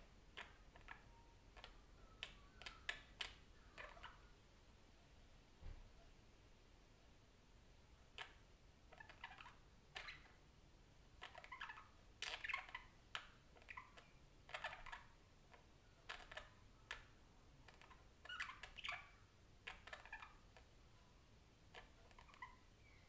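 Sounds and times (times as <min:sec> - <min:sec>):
budgerigar chirping and warbling: 0:00.4 - 0:04.3, 0:08.2 - 0:10.4, 0:11.2 - 0:15.2, 0:16.0 - 0:17.1, 0:17.7 - 0:20.7, 0:21.7 - 0:23.0.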